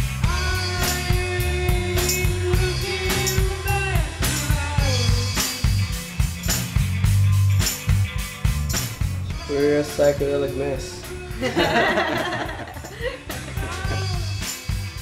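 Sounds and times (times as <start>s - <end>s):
rock band playing live: 0.0s - 8.8s.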